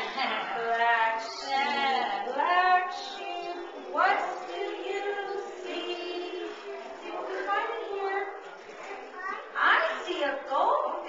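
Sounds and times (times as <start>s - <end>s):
children singing: 0.0s - 8.4s
woman singing: 0.1s - 6.6s.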